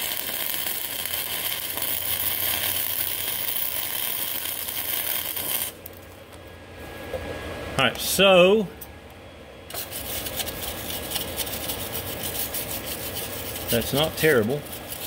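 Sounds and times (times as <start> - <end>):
welder arc crackling: 0.0 - 6.4, 9.7 - 15.0
low steady hum: 0.2 - 15.0.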